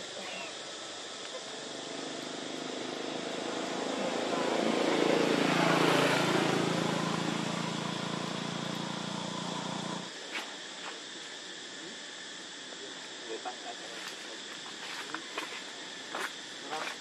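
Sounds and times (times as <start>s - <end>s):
vehicle engine passing by: 1.7s - 10.1s.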